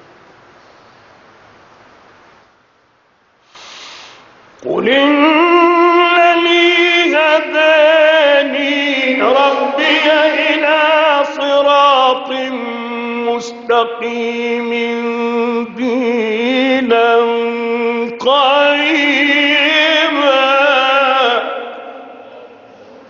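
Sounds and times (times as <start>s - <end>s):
man chanting melodically: 4.6s - 23.0s.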